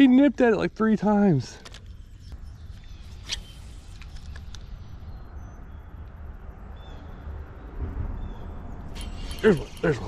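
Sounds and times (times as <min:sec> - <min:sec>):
wind rumbling on microphone: 0:02.5 - 0:09.8
fishing reel clicking: 0:09.0 - 0:09.9.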